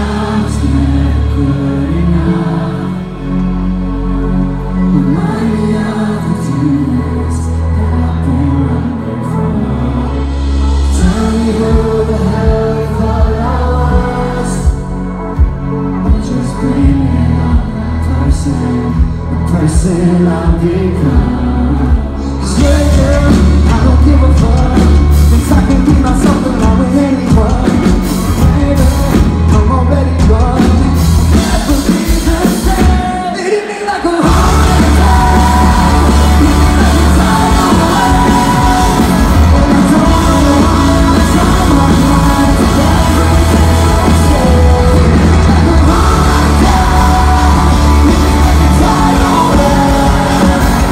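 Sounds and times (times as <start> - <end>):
live rock band playing: 0.0 - 50.9
person singing: 0.0 - 50.9.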